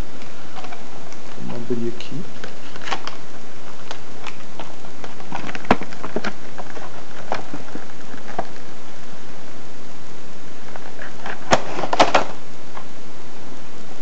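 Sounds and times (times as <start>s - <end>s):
plastic packaging crinkling: 0.0s - 9.1s, 10.6s - 12.9s
plastic packaging snap: 2.4s - 3.2s, 11.0s - 12.4s.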